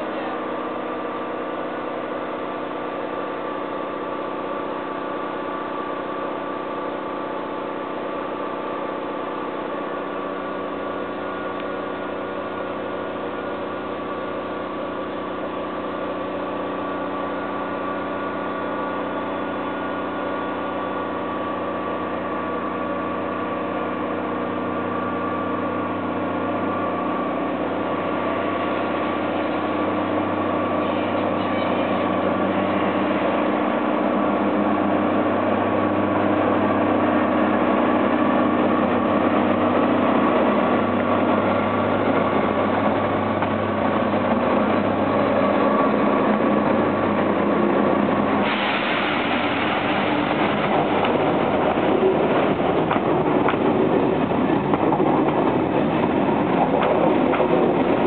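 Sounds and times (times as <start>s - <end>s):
diesel locomotive engine running: 0.0s - 58.0s.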